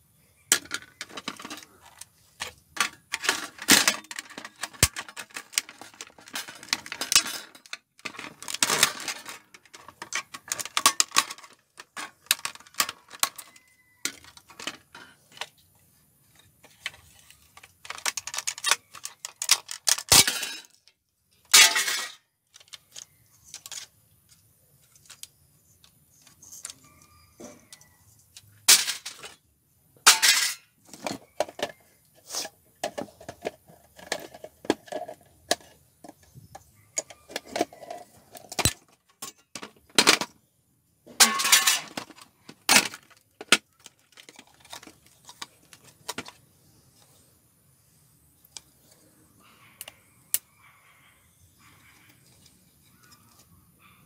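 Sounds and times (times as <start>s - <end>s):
disc drive parts rattling: 0.5s - 15.5s, 16.6s - 20.8s, 37.0s - 40.3s, 41.2s - 46.4s.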